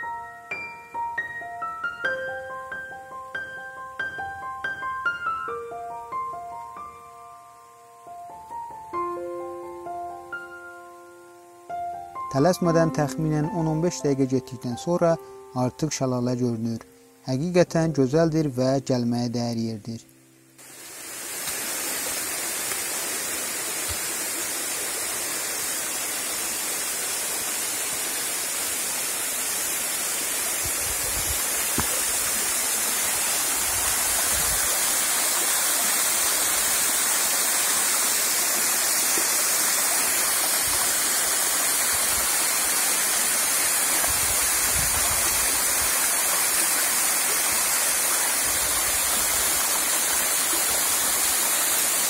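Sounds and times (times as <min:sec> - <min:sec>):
waterfall rushing: 0:20.6 - 0:52.0.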